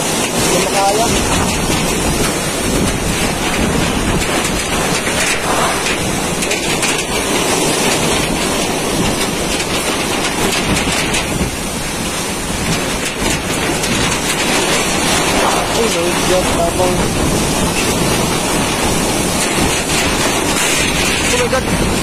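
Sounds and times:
heavy driving rain: 0.0s - 22.0s
strong wind: 0.0s - 22.0s.

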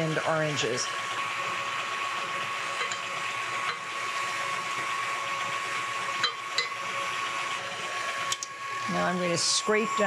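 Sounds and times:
stand mixer whining: 0.0s - 10.0s.

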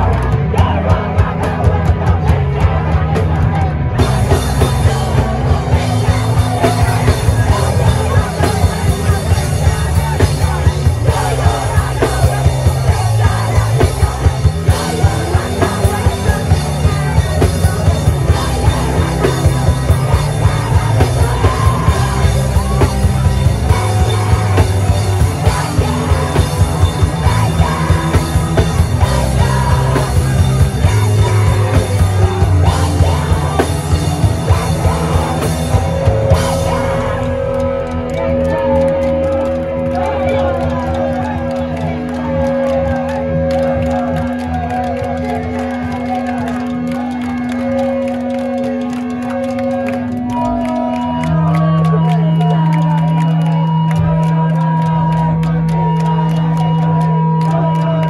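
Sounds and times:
pounding drum beat: 0.0s - 49.2s
live punk rock band: 0.0s - 58.0s.

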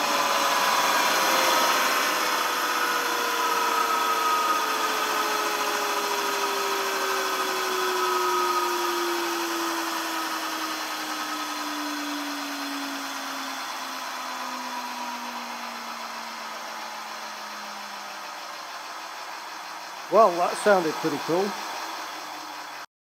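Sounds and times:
turbine whine falling in pitch: 0.0s - 22.9s.

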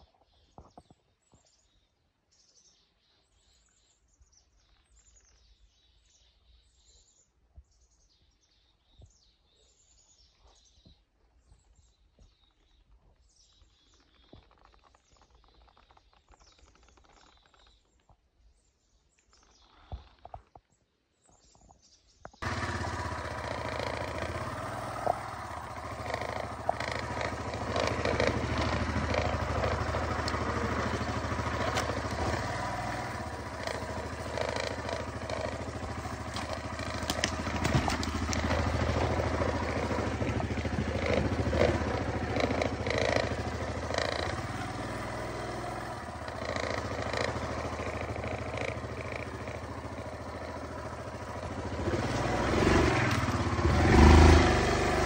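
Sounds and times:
small birds chirping: 0.0s - 55.0s
atv engine idling: 22.4s - 55.0s.

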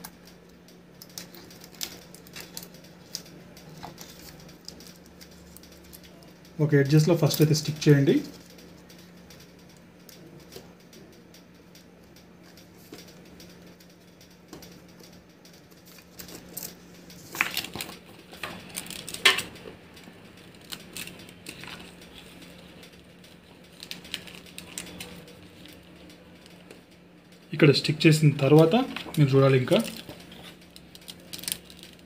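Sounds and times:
low steady hum: 0.0s - 32.0s
plastic film crinkling: 1.0s - 8.5s, 15.6s - 26.8s, 27.5s - 32.0s.

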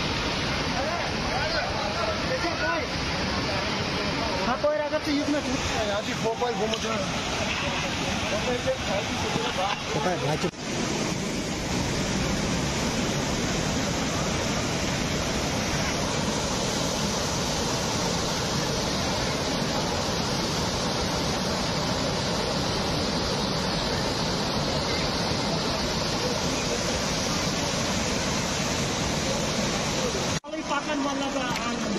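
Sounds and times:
floodwater rushing over road: 0.0s - 31.9s.

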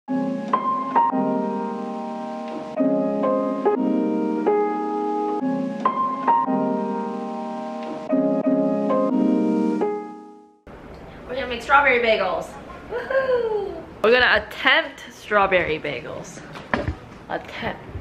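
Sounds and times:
gentle instrumental music: 0.1s - 10.6s.

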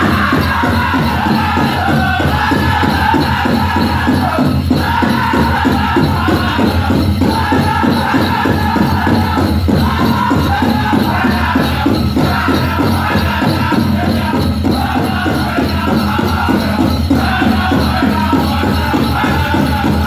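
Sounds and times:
big drum fast beat: 0.0s - 20.0s
high chant-style group singing: 0.0s - 20.0s.

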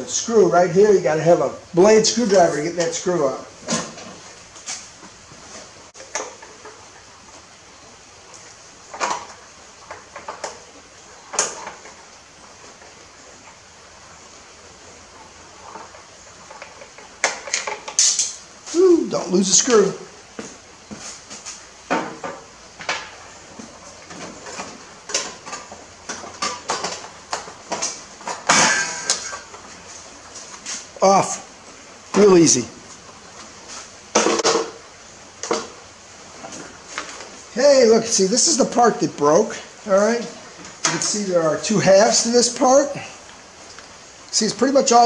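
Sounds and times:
hand tools and engine parts clacking: 15.5s - 18.5s, 20.4s - 30.9s.

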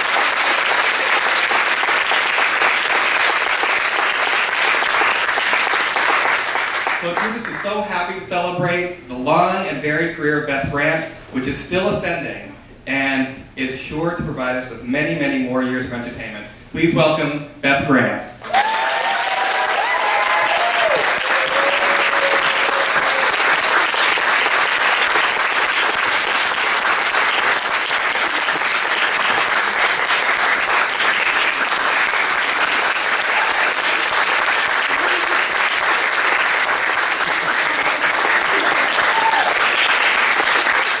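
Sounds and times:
audience applauding: 0.0s - 7.7s, 18.4s - 41.0s
audience cheers: 18.4s - 23.9s, 37.3s - 40.3s.

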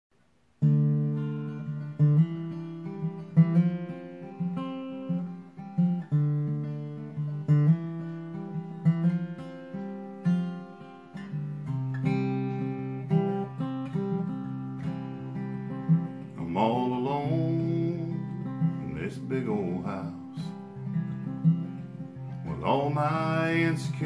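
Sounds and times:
acoustic guitar chords: 0.2s - 24.0s.

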